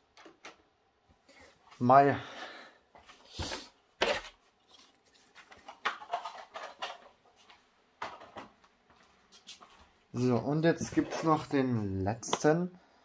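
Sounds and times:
plastic rustling: 4.2 - 8.2.

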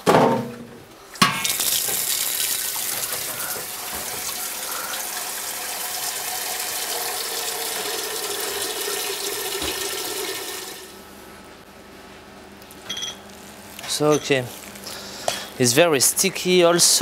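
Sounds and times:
water running from tap: 1.4 - 10.9.

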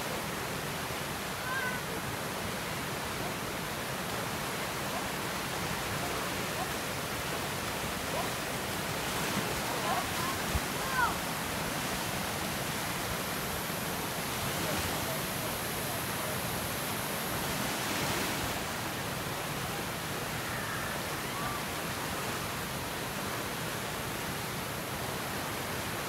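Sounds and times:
river rushing over rapids: 0.0 - 26.0.

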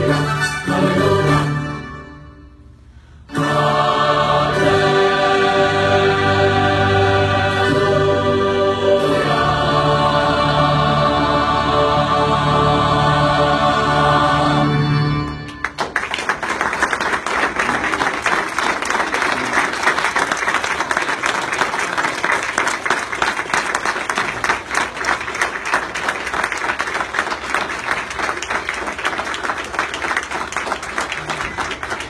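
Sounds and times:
audience applauding: 15.4 - 32.0.

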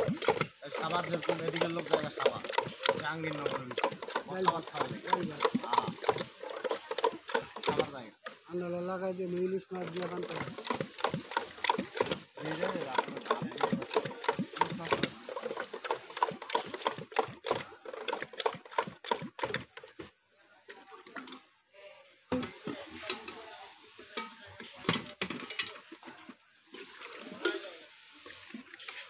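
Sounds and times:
whisk clattering in metal pot: 0.0 - 8.0, 9.8 - 19.7
juice pouring and splashing: 0.0 - 8.1, 9.6 - 19.8, 26.0 - 29.0.

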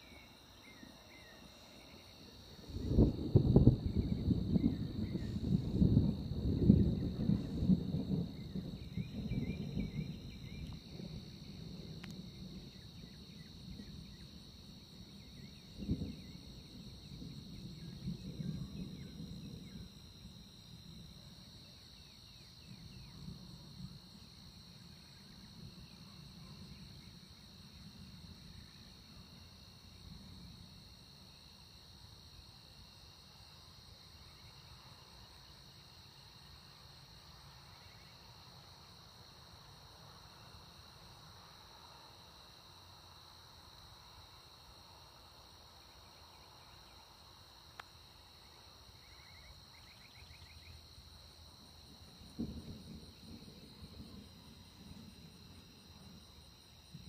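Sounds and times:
night insects trilling: 0.0 - 57.0
distant thunder rumbling: 2.2 - 21.6, 51.6 - 57.0.

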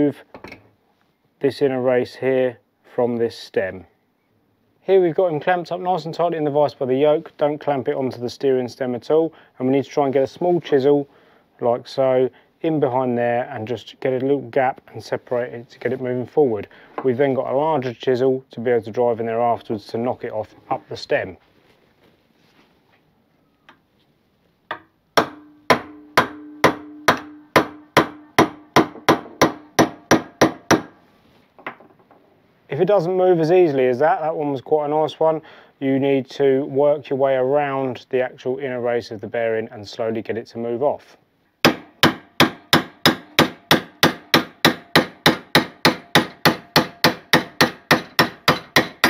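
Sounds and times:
hammer striking chisel: 24.7 - 31.0, 41.6 - 49.0.

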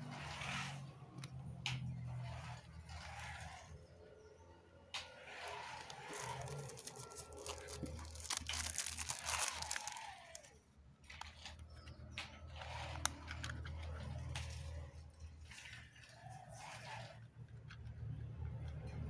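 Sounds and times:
plastic wrapper crinkling and tearing: 5.5 - 11.6.

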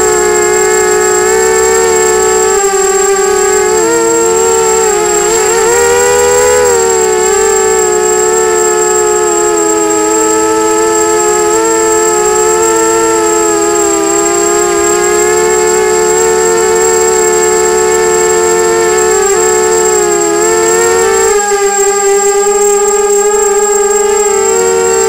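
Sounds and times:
drone motors whining: 0.0 - 25.0
thin steady high tone: 0.0 - 25.0.

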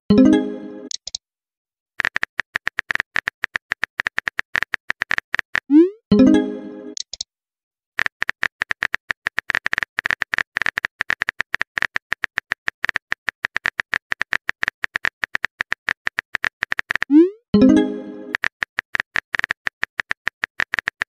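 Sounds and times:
phone keyboard clicks: 7.0 - 7.2.

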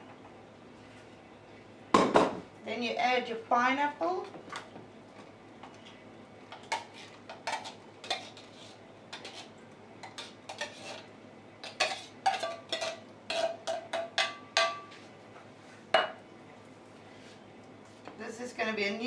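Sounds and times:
spoon scraping tin can: 6.7 - 13.6.

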